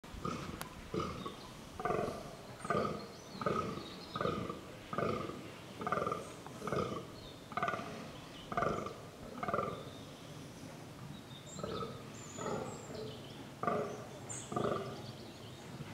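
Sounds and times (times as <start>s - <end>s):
deer grunting: 0.2s - 7.9s.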